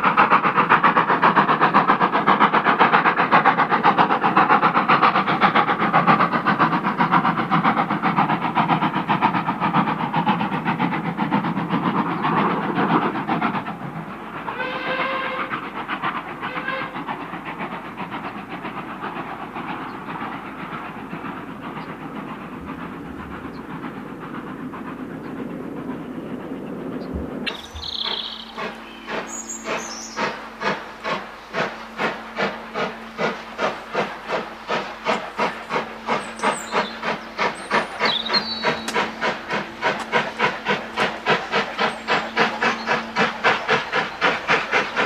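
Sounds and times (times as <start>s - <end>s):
steam locomotive exhaust beats: 0.0s - 45.0s
steam whistle: 14.5s - 15.6s, 16.4s - 17.0s.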